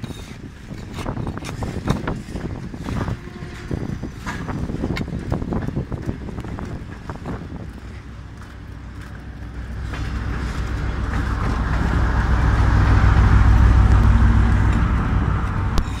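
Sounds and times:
train diesel engine drone: 0:00.0 - 0:16.0.

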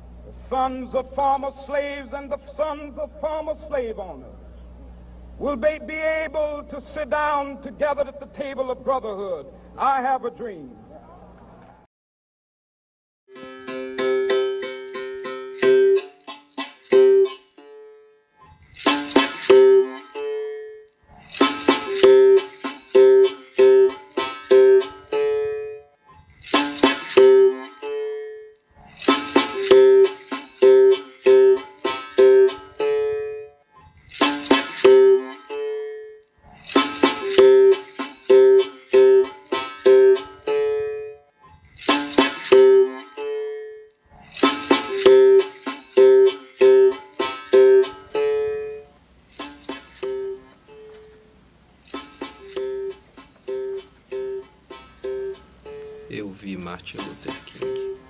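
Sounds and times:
plucked string instrument music: 0:13.3 - 0:58.0.

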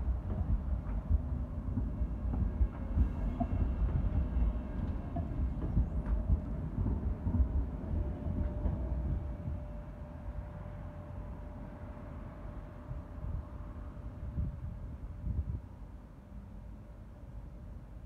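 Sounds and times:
tram wheels rumbling on rails: 0:00.0 - 0:18.0.

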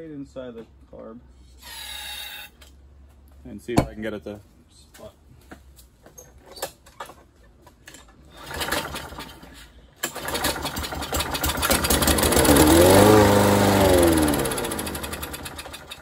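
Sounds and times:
lawn mower pull-start: 0:07.9 - 0:16.0
lawn mower engine running: 0:08.3 - 0:16.0.

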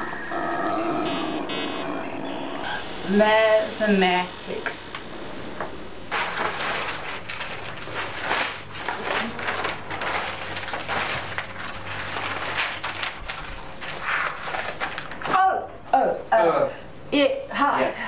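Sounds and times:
paper sheets rustling: 0:05.6 - 0:15.4.

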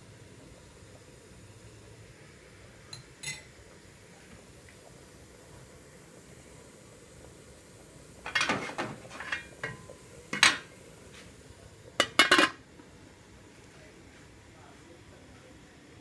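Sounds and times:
metal pot lid clanking: 0:08.3 - 0:10.7, 0:12.0 - 0:12.6.

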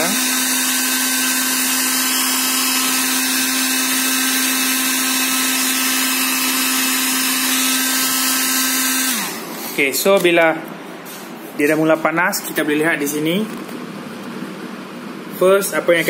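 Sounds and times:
hair dryer running: 0:00.0 - 0:09.8.

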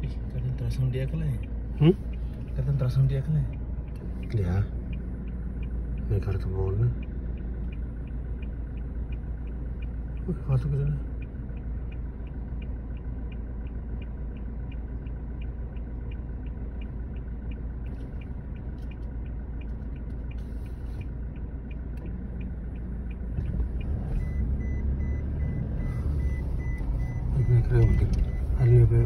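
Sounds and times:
regular high ticking: 0:00.0 - 0:29.0
vehicle engine and road rumble: 0:00.0 - 0:29.0
rapid high beeping: 0:23.8 - 0:29.0.

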